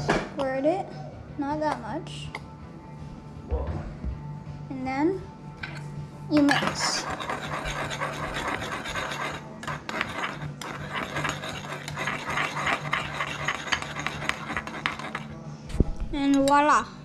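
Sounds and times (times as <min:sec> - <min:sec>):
spoon scraping metal bowl: 0:05.7 - 0:15.4.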